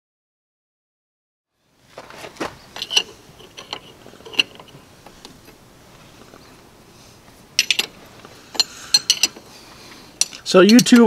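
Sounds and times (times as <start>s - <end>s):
ratcheting wrench clicking: 2.8s - 5.6s, 7.6s - 9.5s, 10.2s - 11.0s.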